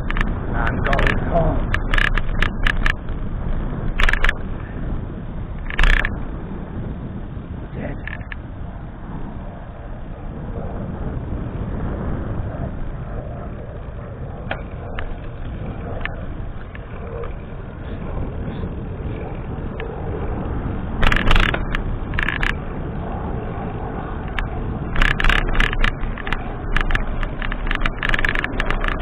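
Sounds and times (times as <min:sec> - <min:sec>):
sharp crackling knocks from gravel: 0:00.0 - 0:03.3, 0:05.6 - 0:06.2, 0:21.0 - 0:22.6
tyres rolling on pavement: 0:00.0 - 0:08.6, 0:14.5 - 0:23.0, 0:24.1 - 0:29.0
wind rushing over microphone: 0:00.0 - 0:29.0.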